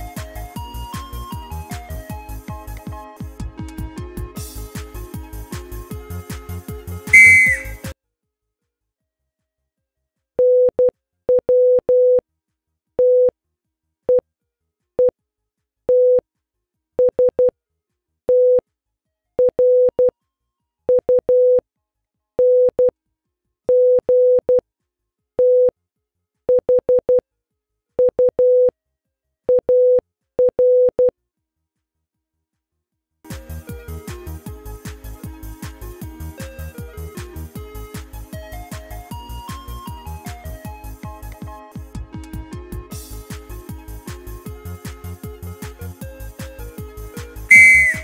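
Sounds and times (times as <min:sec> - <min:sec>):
morse code beeps: 0:47.5 - 0:48.0.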